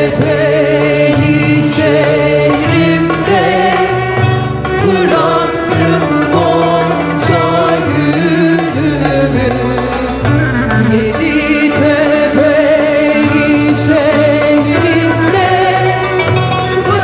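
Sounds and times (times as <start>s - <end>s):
mixed choir singing: 0.0s - 9.8s.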